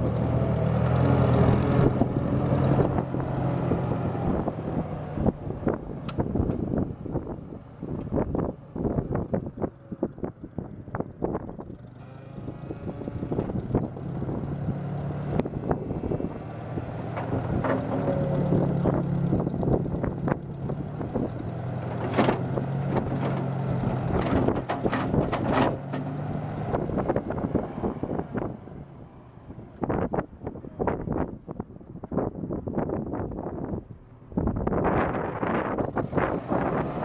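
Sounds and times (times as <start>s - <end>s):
tractor engine running: 0.0s - 31.2s
knocks and rattles: 17.0s - 20.5s, 21.2s - 26.2s.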